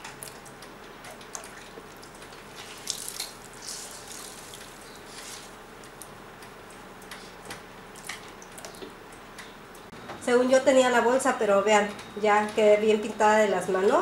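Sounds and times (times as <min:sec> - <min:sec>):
water splashing and dripping: 0:01.1 - 0:05.5.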